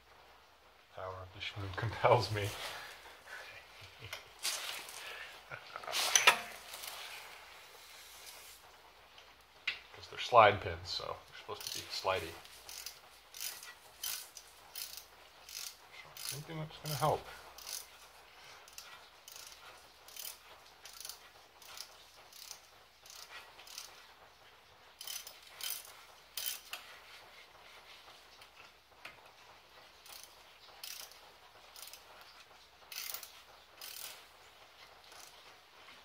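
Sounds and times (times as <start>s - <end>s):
metallic clicking and scraping: 5.9s - 7.3s, 11.3s - 24.2s, 25.0s - 36.0s.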